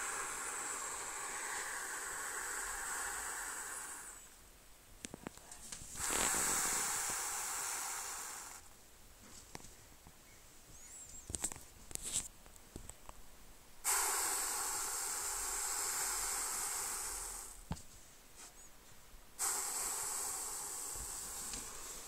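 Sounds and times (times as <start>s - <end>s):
snake scales rasping hiss: 0.0s - 4.4s, 5.9s - 8.7s, 13.8s - 17.7s, 19.4s - 22.0s.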